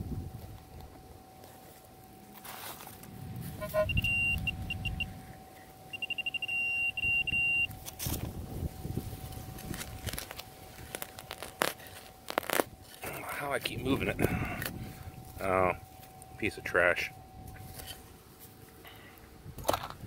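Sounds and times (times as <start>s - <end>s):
pinpointer high-pitched alert: 3.6s - 5.2s, 5.9s - 7.7s
soil and roots rustling: 7.6s - 19.1s.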